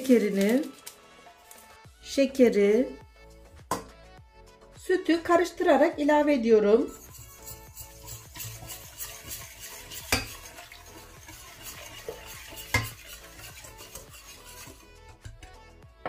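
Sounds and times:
utensil knocking on pot: 0:03.7 - 0:03.9, 0:07.0 - 0:14.8
utensil stirring in a pot: 0:06.7 - 0:15.5.

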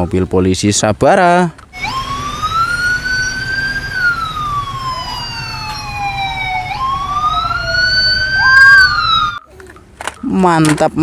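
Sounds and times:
vehicle engines rumbling: 0:00.0 - 0:11.0
police sirens wailing: 0:01.7 - 0:09.5.

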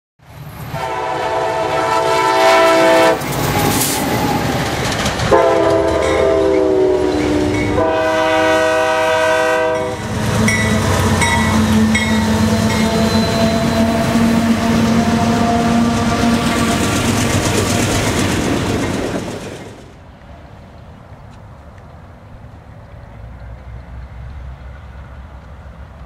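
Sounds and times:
locomotives rumbling past: 0:00.3 - 0:26.0
locomotive air horn blasts: 0:00.7 - 0:03.2, 0:05.3 - 0:16.8
wheels clacking on rails: 0:03.0 - 0:26.0
crossing bell dinging: 0:05.7 - 0:08.0, 0:09.7 - 0:15.9.

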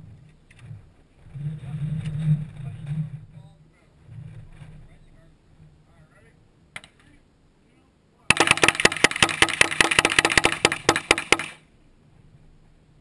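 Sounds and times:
handgun shots: 0:08.3 - 0:11.6.

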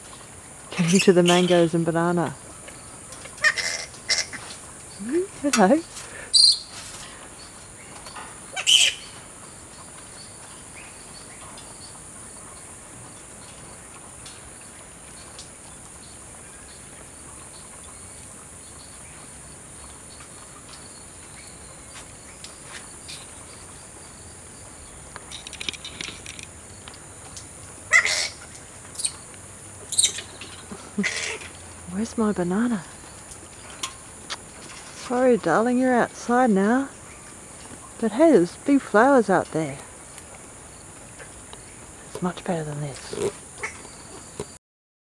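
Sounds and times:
steady high-pitched hiss: 0:00.0 - 0:44.6
flying fox squawking: 0:03.4 - 0:04.5, 0:08.5 - 0:09.1, 0:27.9 - 0:29.2, 0:29.9 - 0:31.6.

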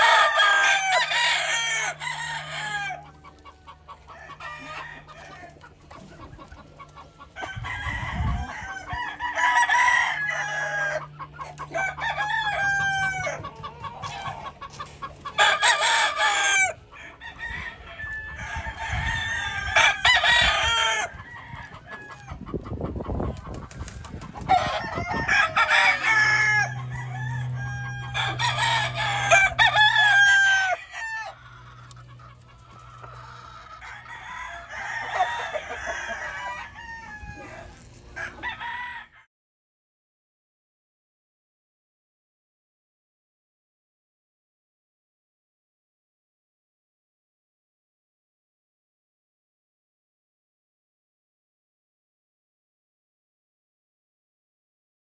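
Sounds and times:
roosters crowing: 0:00.0 - 0:39.3.

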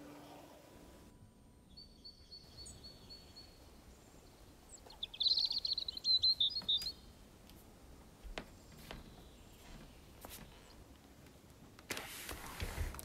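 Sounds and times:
songbird singing: 0:00.0 - 0:07.6, 0:08.3 - 0:10.9.

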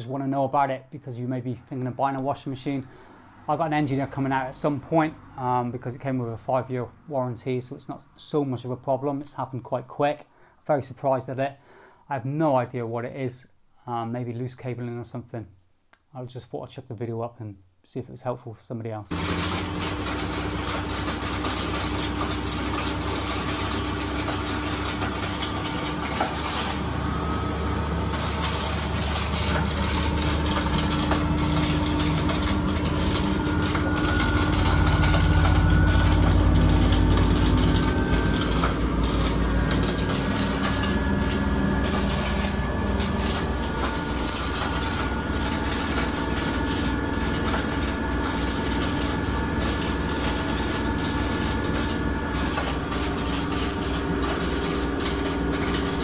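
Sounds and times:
washing machine motor hum: 0:19.1 - 0:56.0.

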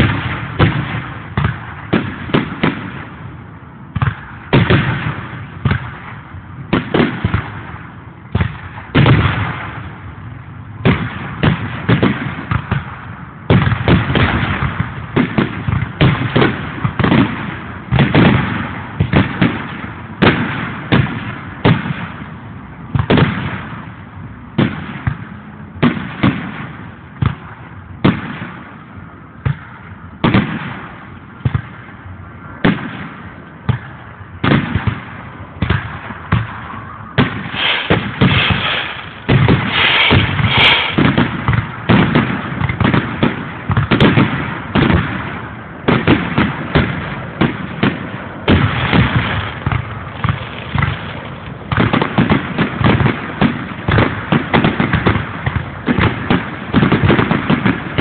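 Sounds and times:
firework shells bursting: 0:37.2 - 0:45.0.

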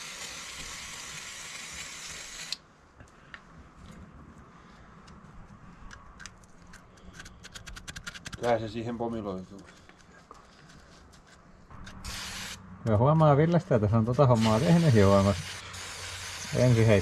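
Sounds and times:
aerosol spray can hissing: 0:12.0 - 0:12.6, 0:14.4 - 0:17.0.

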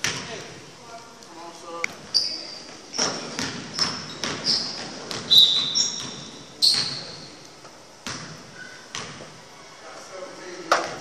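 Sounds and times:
basketball bouncing: 0:00.0 - 0:00.4, 0:03.0 - 0:07.1, 0:08.0 - 0:09.3
sneakers squeaking on gym floor: 0:02.0 - 0:07.4, 0:08.0 - 0:09.4.

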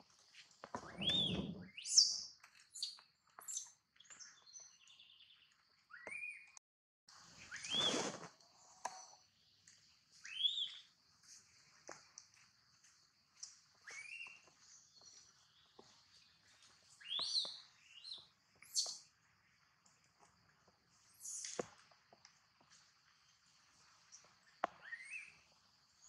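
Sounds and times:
faint high chirps: 0:07.4 - 0:11.4, 0:13.4 - 0:19.1.

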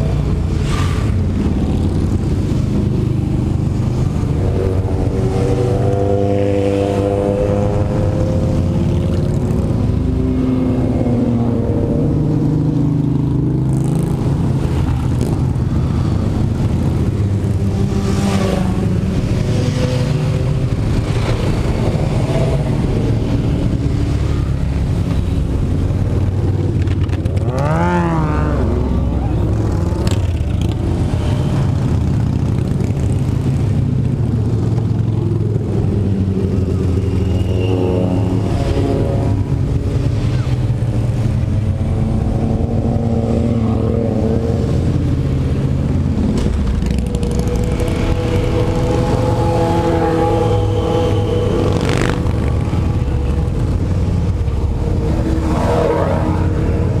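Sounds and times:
motorcycle engine revving: 0:00.0 - 0:57.0
motorcycles riding past: 0:00.0 - 0:57.0.

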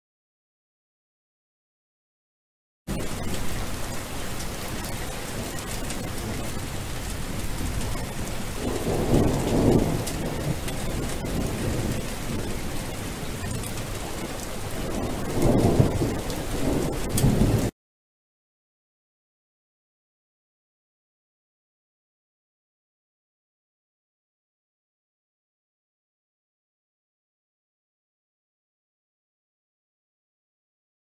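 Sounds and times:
low rolls of thunder: 0:02.9 - 0:17.7
steady rain falling: 0:02.9 - 0:17.7.

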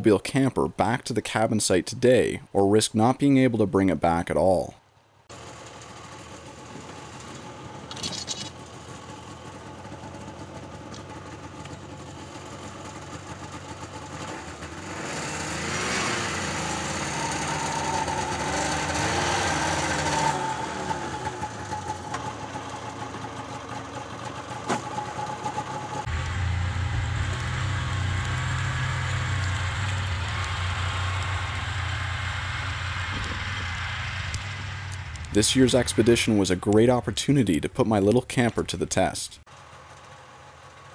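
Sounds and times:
snowmobile engine revving: 0:09.9 - 0:37.5.

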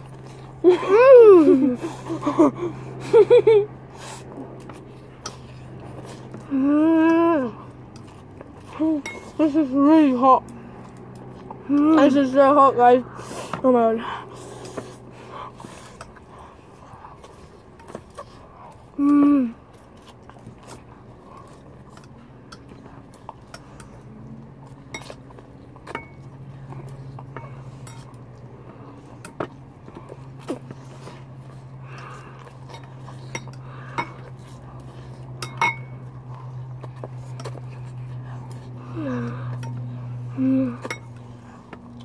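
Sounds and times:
person humming: 0:06.5 - 0:07.6, 0:19.0 - 0:19.6, 0:40.2 - 0:41.0.

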